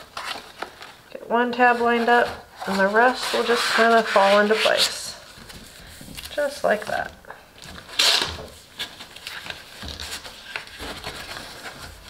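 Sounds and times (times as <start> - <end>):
card crinkling: 0.0 - 1.1, 5.4 - 12.0
cardstock rustling and scraping: 0.0 - 12.0.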